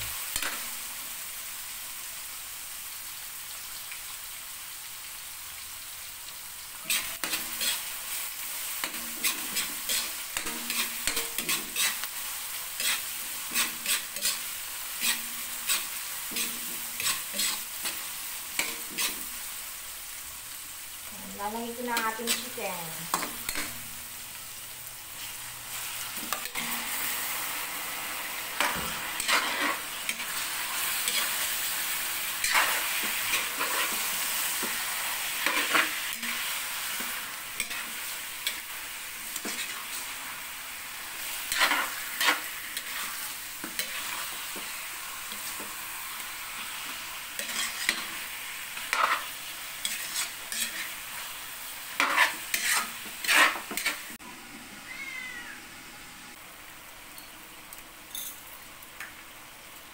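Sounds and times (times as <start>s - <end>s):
chicken sizzling in a wok: 0.0s - 59.9s
metal spatula scraping a pan: 6.8s - 19.4s, 21.9s - 23.8s, 25.2s - 27.3s, 28.5s - 40.3s, 41.2s - 45.8s, 46.8s - 51.3s, 51.9s - 54.2s.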